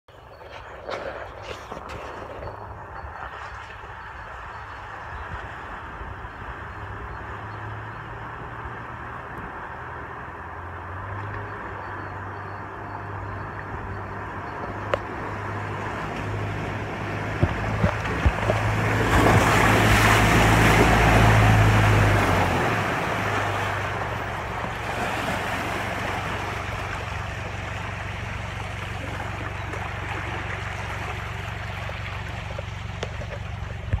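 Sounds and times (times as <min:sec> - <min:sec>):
suv engine hum: 0:00.1 - 0:34.0
water splashing from wheels: 0:00.3 - 0:34.0
water rushing over ford: 0:15.7 - 0:34.0.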